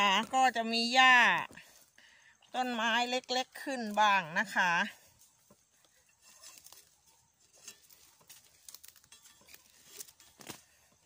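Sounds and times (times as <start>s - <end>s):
footsteps rustling through leaves: 6.2s - 10.8s.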